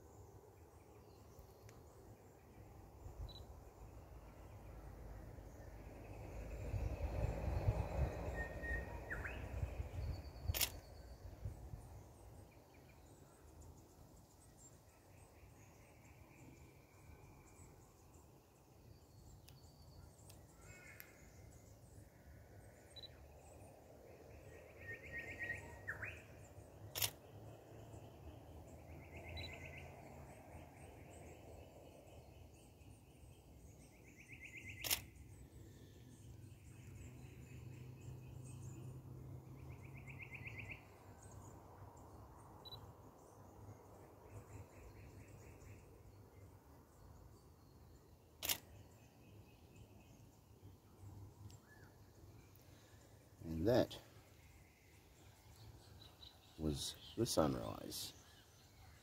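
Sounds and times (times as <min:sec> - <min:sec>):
camera shutter clicking: 0:10.5 - 0:10.9, 0:27.0 - 0:27.2, 0:34.8 - 0:35.1, 0:48.4 - 0:48.8.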